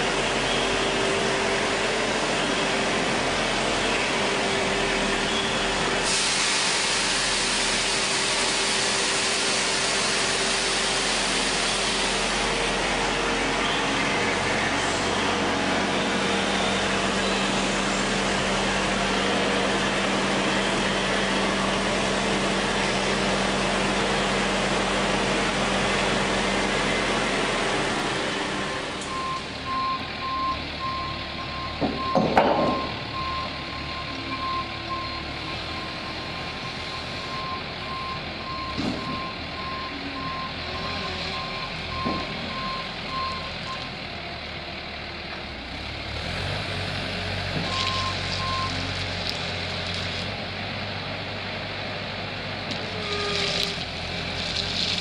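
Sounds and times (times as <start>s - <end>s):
forklift engine and hydraulic hum: 0.0s - 55.0s
backup alarm beeping: 29.1s - 43.9s.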